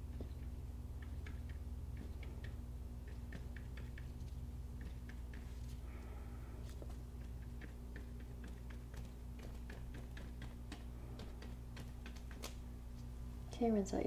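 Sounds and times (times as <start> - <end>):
low electrical hum: 0.0 - 14.0
paintbrush dabbing on canvas: 1.0 - 5.8, 6.7 - 13.0.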